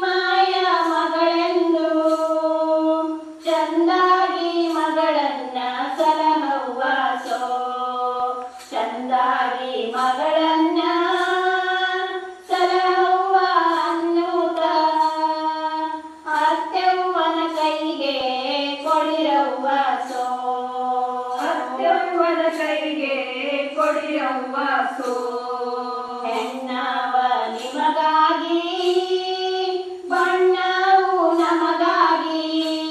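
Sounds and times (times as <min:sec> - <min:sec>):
women singing in unison: 0:00.0 - 0:32.9.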